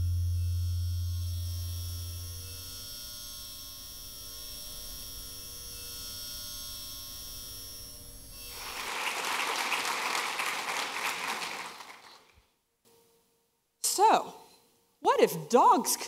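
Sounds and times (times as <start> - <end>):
low electrical hum: 0.0 - 9.1.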